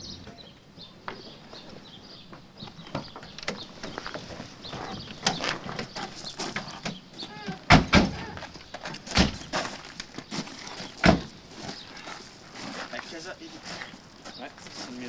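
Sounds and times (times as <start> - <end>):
car doors thumping shut: 7.7 - 8.3.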